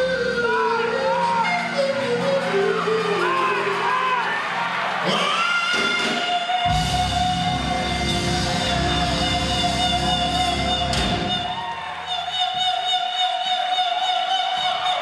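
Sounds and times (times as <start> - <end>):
gospel band playing: 0.0 - 13.7
bass and drums: 5.8 - 11.5.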